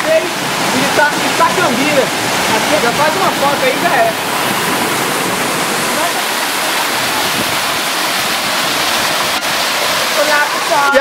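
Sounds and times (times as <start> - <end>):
waterfall pouring into rock pool: 0.0 - 11.0.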